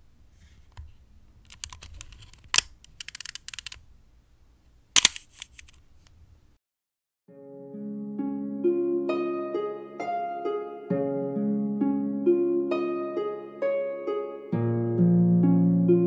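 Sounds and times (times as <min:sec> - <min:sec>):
film advance ratcheting clicks: 0:01.5 - 0:03.8
camera shutter clicks: 0:05.0 - 0:05.7.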